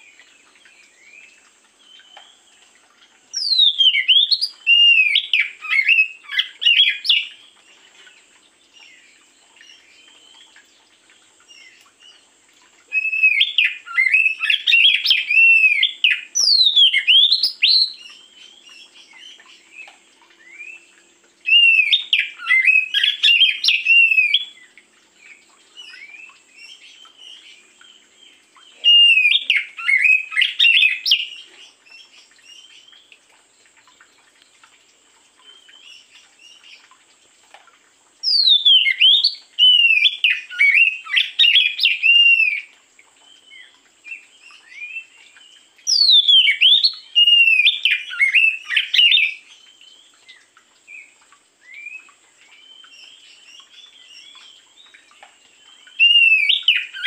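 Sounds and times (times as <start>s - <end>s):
bird singing whistled phrases: 3.3s - 7.4s, 12.9s - 19.0s, 21.5s - 24.7s, 28.7s - 31.5s, 38.2s - 42.7s, 45.9s - 49.4s, 55.9s - 57.0s.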